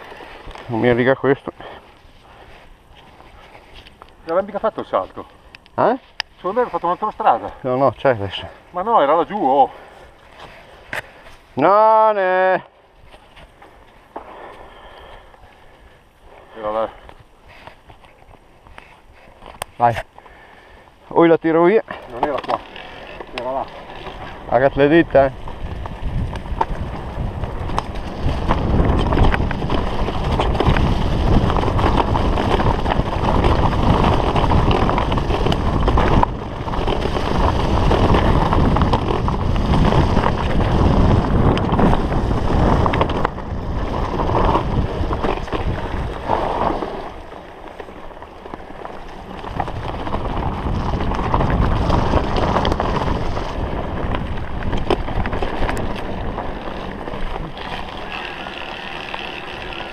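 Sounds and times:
bike rattling: 0.0 - 59.9
tyres rumbling on dirt: 21.2 - 59.9
wind buffeting microphone: 23.2 - 59.9.

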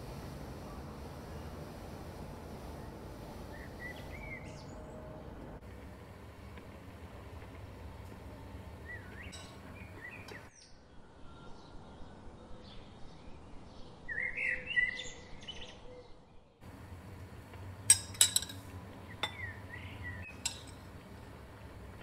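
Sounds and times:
birds chirping: 2.6 - 5.1, 8.2 - 16.6, 17.9 - 22.0
kitchenware clinking: 9.3 - 9.7, 17.9 - 19.5, 20.3 - 21.0.

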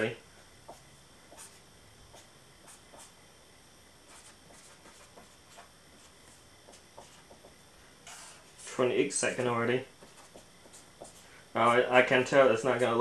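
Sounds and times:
low hiss: 0.0 - 13.0
pen scratching on paper: 0.7 - 3.2, 4.1 - 8.7, 9.3 - 11.9.

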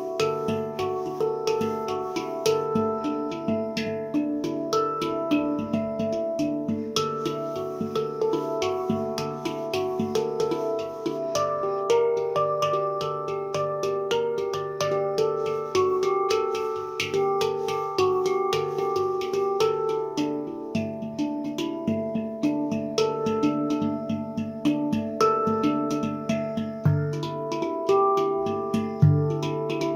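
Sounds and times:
handpan notes ringing: 0.0 - 29.9.

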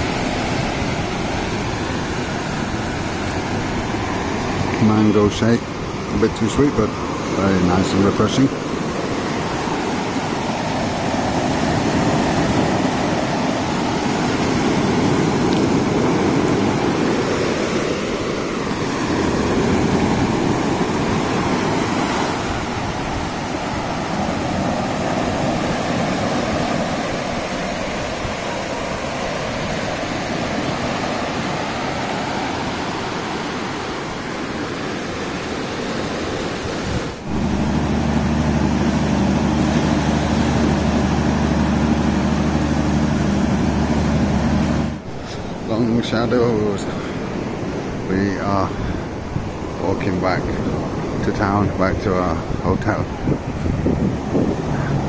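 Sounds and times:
surf breaking on beach: 0.0 - 55.0
steady low hum: 37.2 - 45.7.

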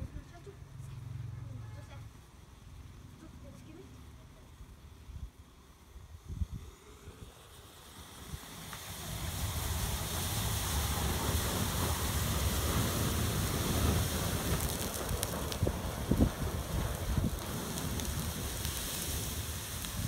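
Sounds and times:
sparklers hissing: 6.0 - 20.0
sparklers crackling: 7.4 - 20.0.

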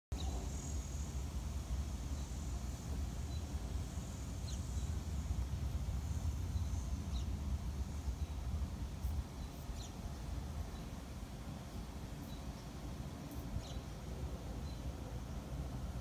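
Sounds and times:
steady low rumble: 0.1 - 16.0
high falling bird chirps: 9.2 - 11.0.

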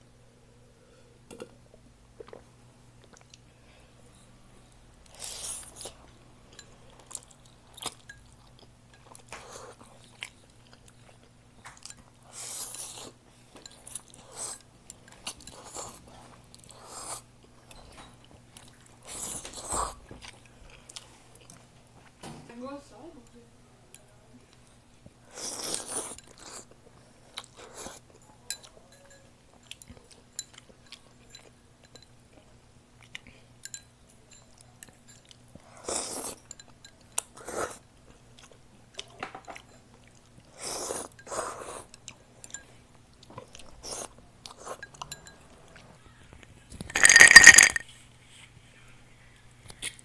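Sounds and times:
slurping and chewing noodles: 5.1 - 6.0, 12.2 - 17.3, 25.2 - 28.1, 35.6 - 36.4, 37.2 - 39.1, 40.0 - 42.6, 43.2 - 44.9
glassy clatter: 46.8 - 47.8.

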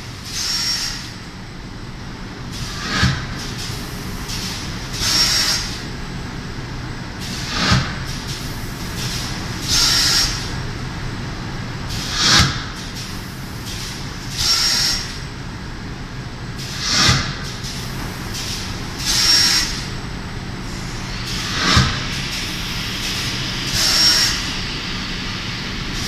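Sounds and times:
machine mechanical hum: 0.0 - 26.0
hissing air bursts: 20.6 - 26.0.

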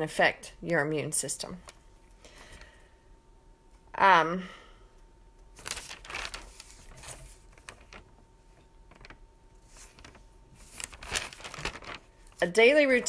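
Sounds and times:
rustling of things handled: 5.5 - 13.0.

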